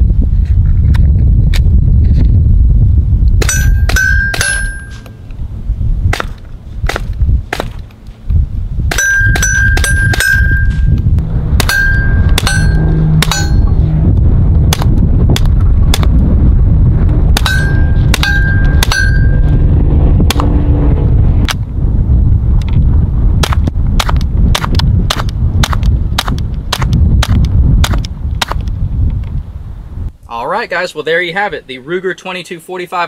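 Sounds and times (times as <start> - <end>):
ringing ding of steel target: 3.4 - 5.2, 8.9 - 10.9, 11.6 - 13.8, 17.4 - 19.4.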